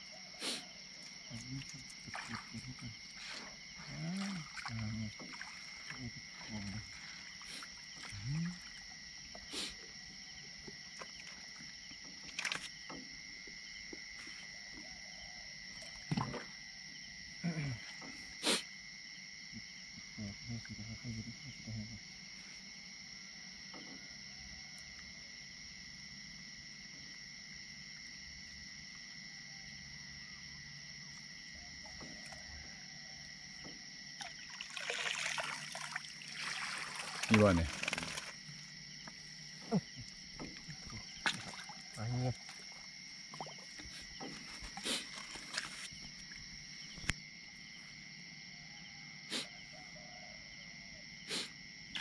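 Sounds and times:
crickets trilling: 0.0 - 52.0
night insect chorus: 0.0 - 52.0
water splashing and dripping: 1.3 - 8.9, 34.2 - 38.5, 40.0 - 46.4
sharp knocks or splashes: 2.0 - 2.7, 16.1 - 16.5, 40.4 - 42.5.

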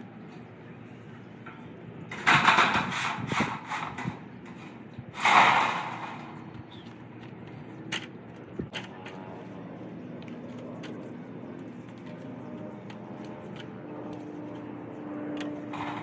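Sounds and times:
roofing panel rattling: 2.1 - 6.8, 15.4 - 16.0.

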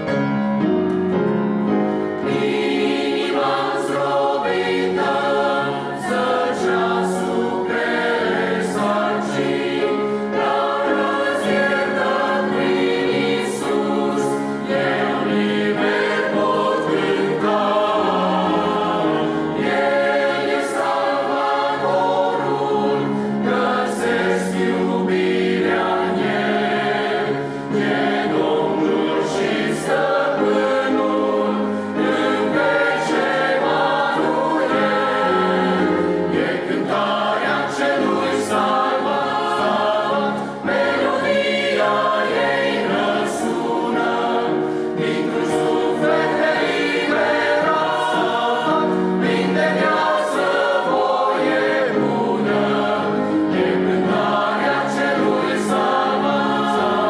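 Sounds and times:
mixed choir singing a hymn: 1.6 - 57.0.

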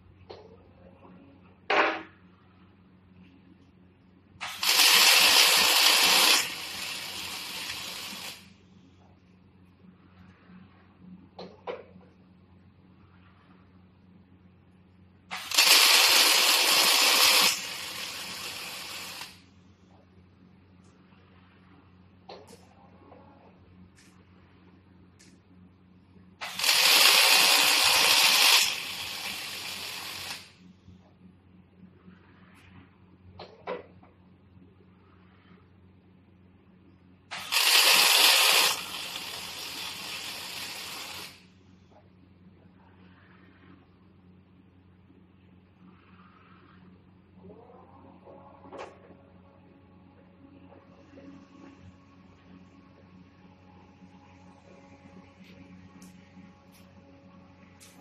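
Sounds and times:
faint low hum: 0.0 - 4.5, 7.3 - 15.4, 19.2 - 26.5, 41.4 - 58.0
arc welding crackling hiss: 4.4 - 8.6, 15.3 - 19.5, 26.4 - 30.6, 37.3 - 41.5.

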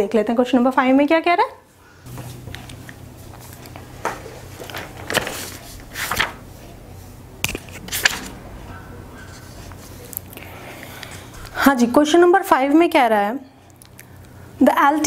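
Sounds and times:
low hum: 5.8 - 11.6.

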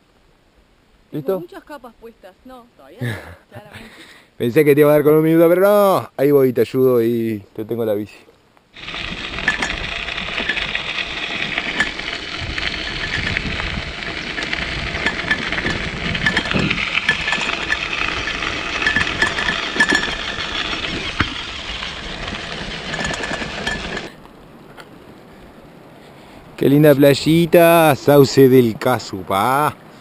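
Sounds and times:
wind on microphone: 8.8 - 22.7
small clicks and rattles: 8.8 - 24.1
tyres crunching on gravel: 8.8 - 25.4.

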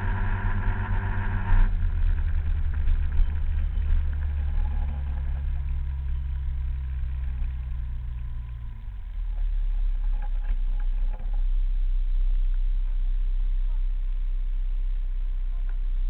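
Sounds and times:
scooter engine running: 0.0 - 11.2
wind rumbling on microphone: 0.0 - 16.0.

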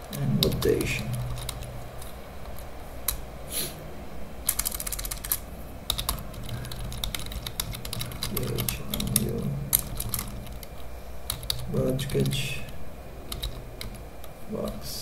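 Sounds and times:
keyboard typing clicks: 0.0 - 3.2, 4.5 - 12.4, 13.3 - 14.0.

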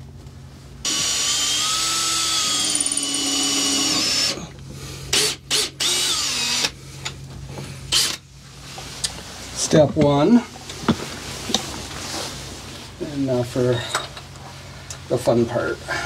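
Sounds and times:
battery drill whining: 0.9 - 4.5, 5.1 - 6.8, 7.9 - 8.2.

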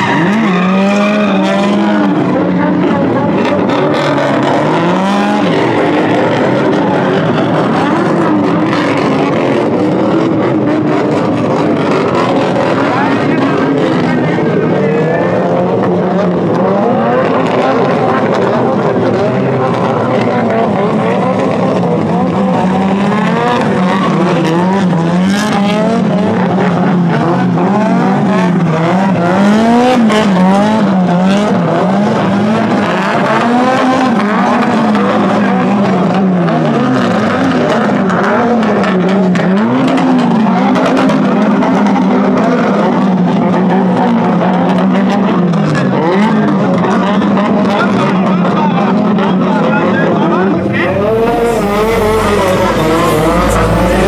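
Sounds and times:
tyres squealing and skidding: 0.0 - 2.2, 50.4 - 54.0
car engine revving: 0.0 - 48.2, 48.8 - 54.0.

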